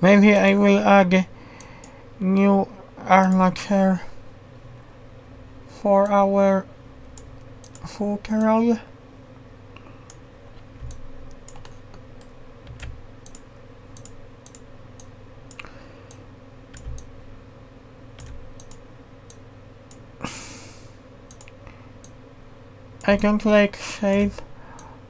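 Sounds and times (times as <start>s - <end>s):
low electrical hum: 0.0s - 25.0s
keyboard and mouse clicks: 3.2s - 3.5s, 10.0s - 17.1s, 18.2s - 20.0s, 21.3s - 22.2s, 23.0s - 23.4s, 24.1s - 24.9s.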